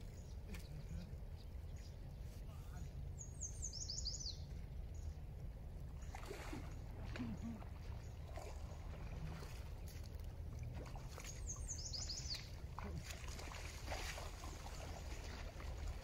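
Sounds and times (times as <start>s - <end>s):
bird chirping: 0.0s - 5.2s, 11.1s - 12.6s
steady low rumble: 0.0s - 16.0s
water splashing and sloshing: 4.4s - 16.0s.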